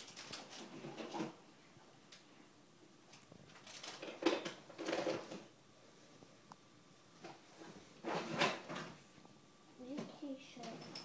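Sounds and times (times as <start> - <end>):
rustling of toys: 0.0 - 1.4, 3.1 - 5.5, 7.2 - 9.0.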